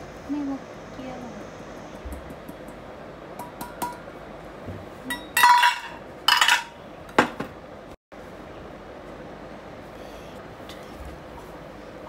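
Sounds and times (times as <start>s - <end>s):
dishes clinking against glass bowl: 5.1s - 7.4s.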